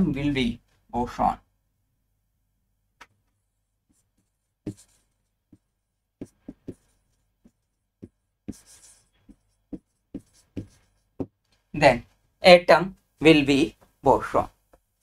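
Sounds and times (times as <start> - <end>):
pen scratching on glass: 4.6 - 5.6, 6.2 - 11.3.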